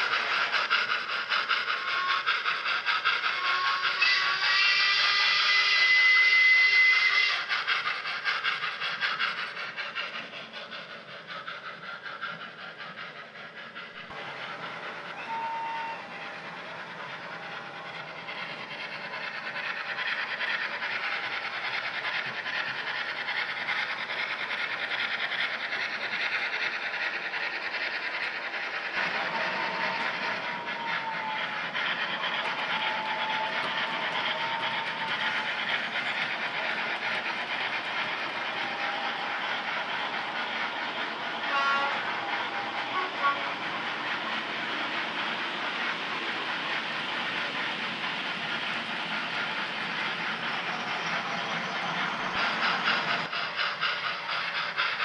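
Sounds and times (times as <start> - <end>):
model locomotive chuffing: 0.0 - 55.0
model train whistle: 3.4 - 7.5, 15.1 - 16.2, 29.4 - 31.6, 32.3 - 35.5, 41.5 - 43.6.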